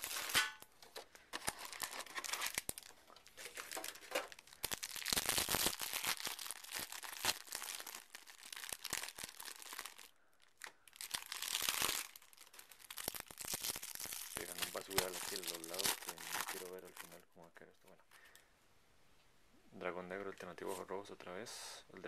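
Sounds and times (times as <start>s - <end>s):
plastic wrapping crinkling: 0.0s - 17.2s.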